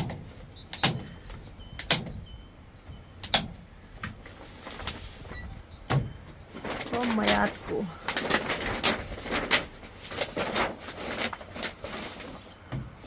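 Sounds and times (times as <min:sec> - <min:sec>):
paper rustling: 0:04.2 - 0:05.3, 0:06.5 - 0:12.7.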